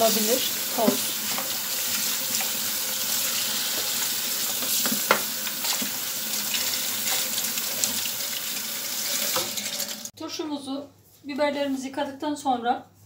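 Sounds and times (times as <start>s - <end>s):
tap water running: 0.0s - 10.1s.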